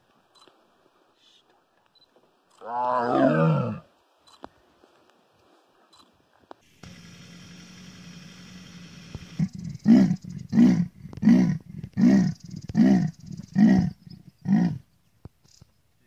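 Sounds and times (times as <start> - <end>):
leopard rasping grunts: 9.4 - 14.8.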